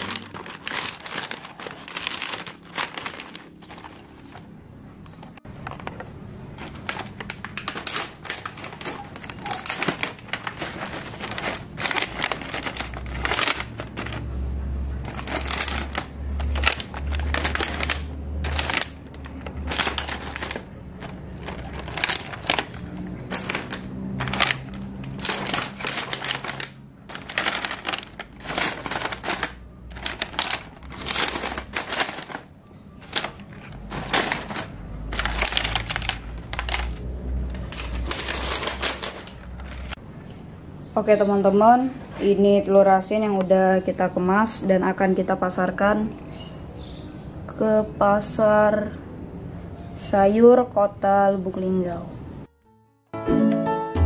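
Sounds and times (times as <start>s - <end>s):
plastic egg packs clattering: 0.0s - 40.0s.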